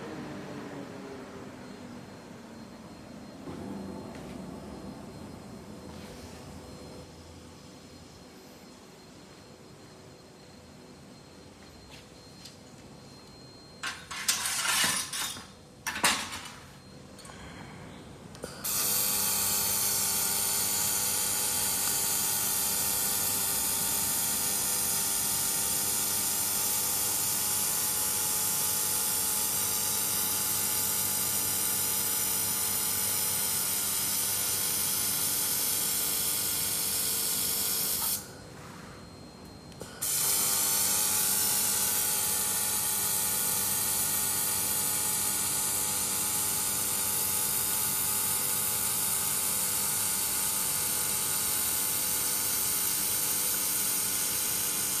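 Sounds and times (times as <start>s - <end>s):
laser hissing with whine: 18.4s - 38.3s, 39.8s - 55.0s.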